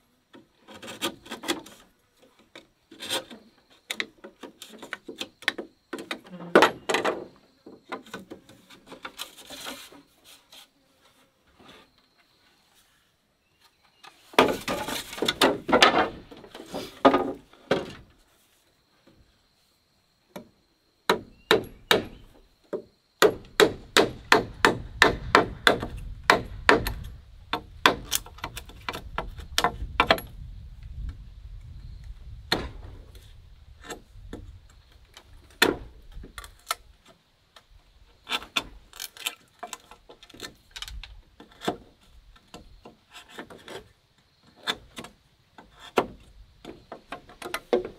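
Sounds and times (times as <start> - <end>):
wood scraping noise: 0.4 - 5.4, 6.0 - 19.4, 37.9 - 47.9
hard strikes on wood: 21.1 - 28.1.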